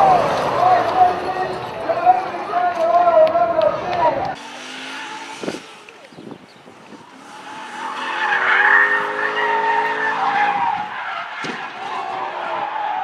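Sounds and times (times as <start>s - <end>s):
car engine revving: 4.3s - 12.2s
tyres squealing: 4.4s - 13.0s.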